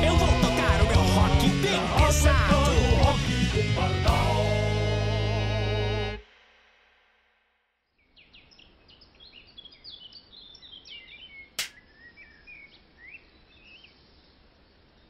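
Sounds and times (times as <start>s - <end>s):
faint outdoor hiss: 7.9s - 15.0s
small birds chirping: 8.0s - 15.0s
sharp click: 11.6s - 11.8s.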